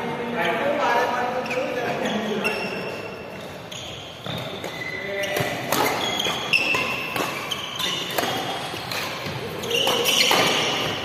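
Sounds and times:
shoes squeaking on court: 0:00.4 - 0:11.0
racket hitting shuttlecock: 0:04.2 - 0:11.0.

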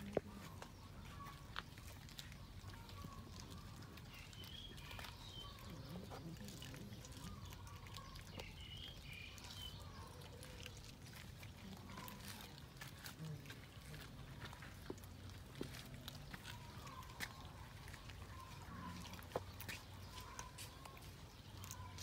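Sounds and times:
cats chewing: 0:00.0 - 0:22.0
bird chirps: 0:00.1 - 0:11.2, 0:15.6 - 0:22.0.

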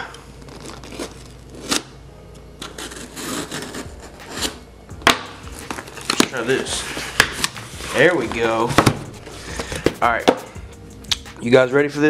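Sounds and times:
box rubbing and scraping: 0:00.3 - 0:02.0, 0:02.6 - 0:04.7, 0:05.4 - 0:10.4.

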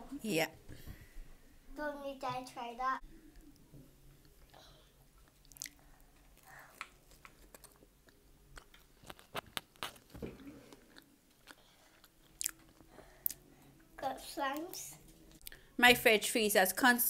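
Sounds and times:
chewing pizza: 0:04.2 - 0:13.4.

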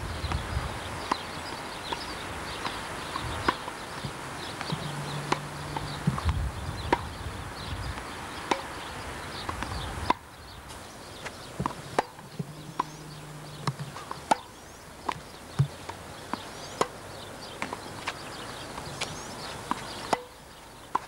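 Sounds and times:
tennis ball bouncing on court: 0:01.0 - 0:07.1, 0:07.9 - 0:08.8, 0:09.4 - 0:17.0, 0:17.6 - 0:21.0
tennis ball hit by rackets: 0:01.1 - 0:07.1, 0:07.9 - 0:08.7, 0:09.5 - 0:17.0, 0:17.6 - 0:18.2, 0:18.8 - 0:20.3.

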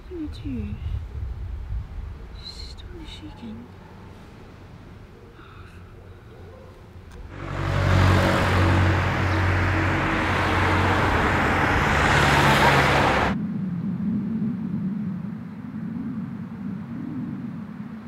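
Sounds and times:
car driving past: 0:07.2 - 0:13.4.

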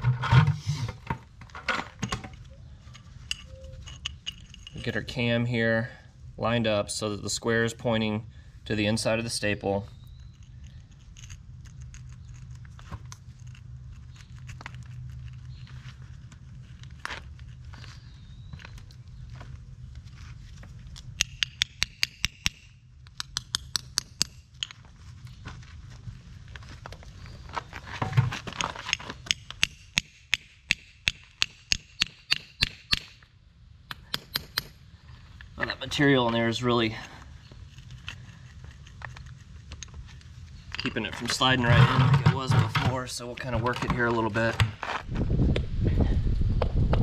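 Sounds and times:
steady low hum: 0:00.0 - 0:47.0
hammer tapping steel staple: 0:33.9 - 0:34.7.

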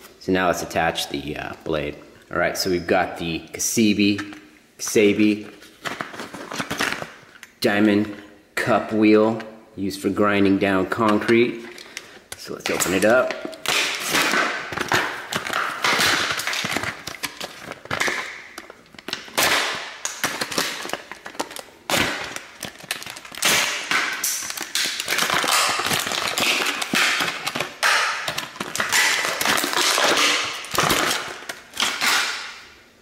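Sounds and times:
plastic packaging crackling: 0:05.2 - 0:07.5, 0:11.1 - 0:32.7
knife cutting plastic: 0:12.6 - 0:32.5.

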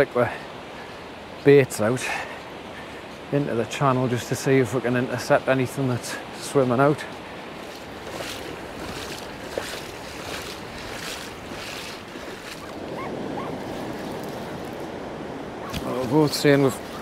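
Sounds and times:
surf washing over sand: 0:00.0 - 0:17.0
wind buffeting microphone: 0:07.4 - 0:17.0.

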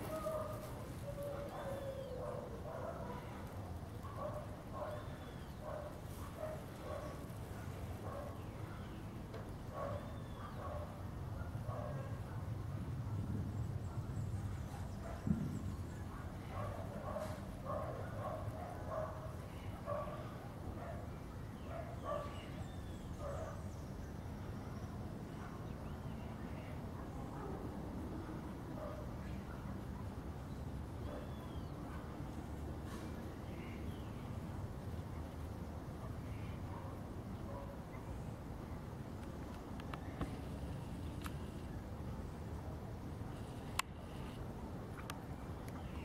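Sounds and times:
distant dog barking: 0:00.0 - 0:09.1, 0:09.7 - 0:23.8, 0:25.3 - 0:25.9, 0:26.7 - 0:30.2, 0:30.9 - 0:32.3, 0:35.2 - 0:38.3.

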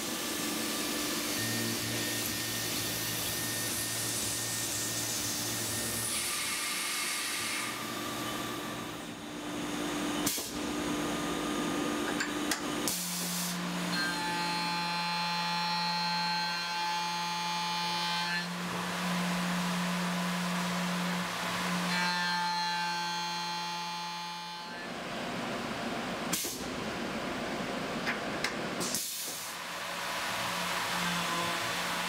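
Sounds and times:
milling machine cutting whine: 0:00.0 - 0:09.7.

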